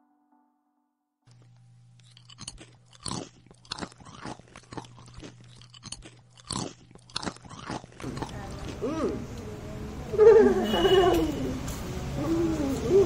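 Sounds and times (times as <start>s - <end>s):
potato chips crunching: 1.3s - 8.9s.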